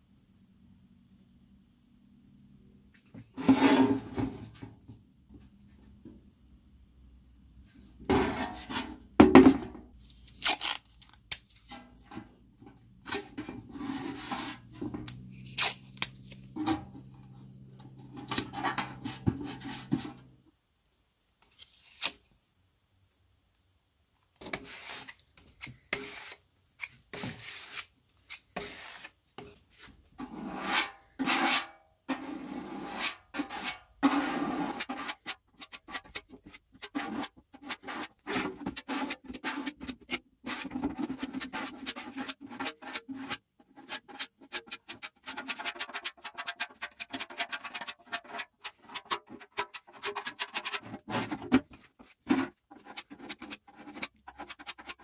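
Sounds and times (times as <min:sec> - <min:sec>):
hand scraping and sanding metal lid: 0:03.4 - 0:04.4, 0:08.1 - 0:09.0, 0:13.0 - 0:15.6, 0:16.3 - 0:20.3, 0:24.4 - 0:25.2, 0:25.9 - 0:26.4, 0:27.1 - 0:55.0.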